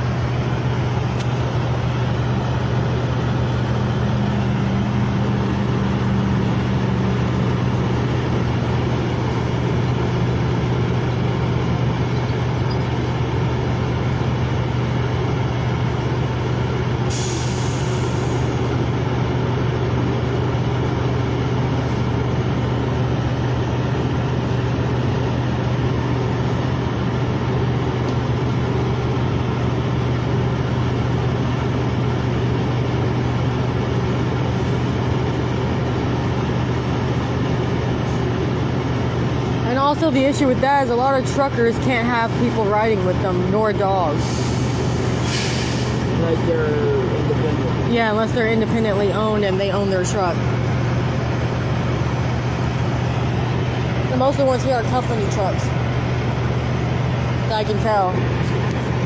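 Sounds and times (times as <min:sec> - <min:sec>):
trucks idling: 0:00.0 - 0:59.0
air brakes hissing: 0:17.0 - 0:18.6, 0:44.1 - 0:46.2.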